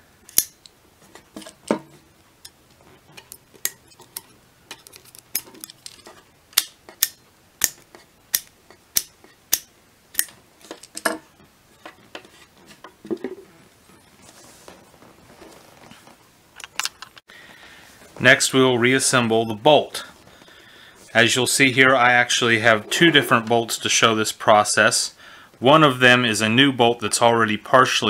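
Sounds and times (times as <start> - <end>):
sharp metal clicks: 0.2 - 0.8, 3.2 - 11.1.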